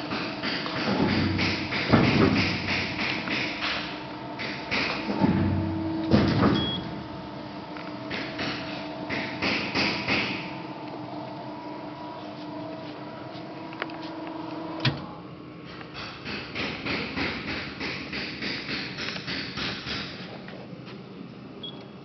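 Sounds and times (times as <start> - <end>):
shear machinery humming: 0.0 - 15.8.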